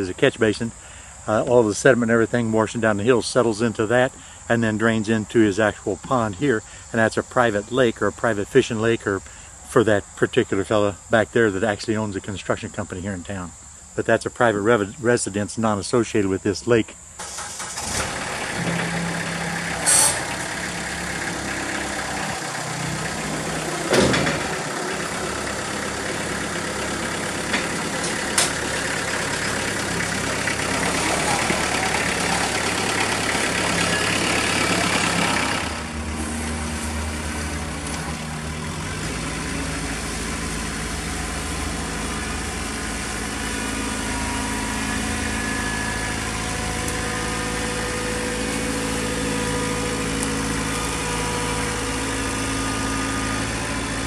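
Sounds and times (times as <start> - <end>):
tractor diesel engine running: 17.0 - 54.0.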